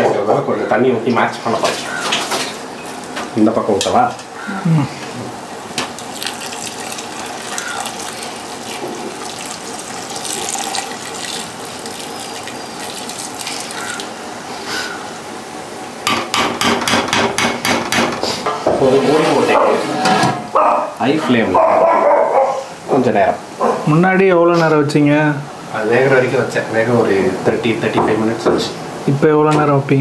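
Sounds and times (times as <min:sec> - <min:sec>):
water pouring into a pot: 0:06.0 - 0:14.2.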